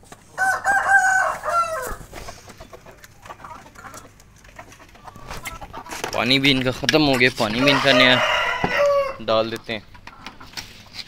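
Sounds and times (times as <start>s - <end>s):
hens feeding: 0.0s - 11.0s
rooster crowing: 0.4s - 2.1s, 7.4s - 9.3s.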